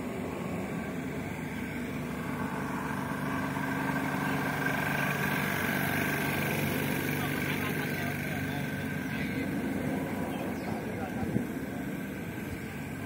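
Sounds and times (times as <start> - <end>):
engine hum: 0.0 - 13.0.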